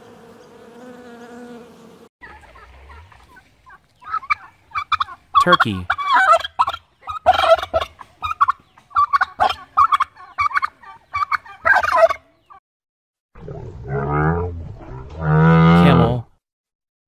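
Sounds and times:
turkey gobbling: 2.2s - 12.6s.

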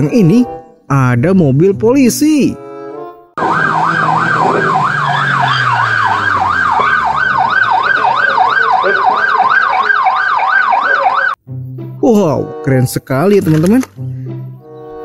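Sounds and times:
police siren yelp: 3.4s - 11.4s.

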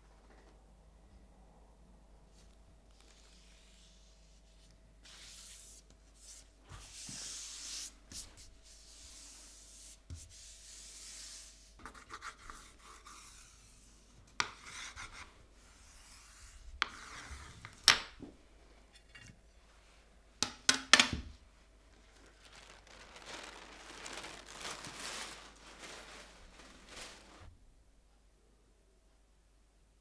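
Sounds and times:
paper being rubbed by hand: 3.0s - 14.0s
paper crinkling: 21.9s - 27.6s.

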